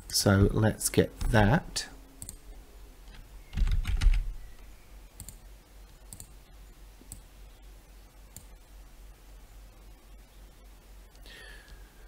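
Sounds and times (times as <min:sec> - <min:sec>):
steady low hum: 0:00.0 - 0:12.0
computer mouse clicks: 0:02.2 - 0:02.4, 0:05.2 - 0:06.4, 0:08.3 - 0:08.5.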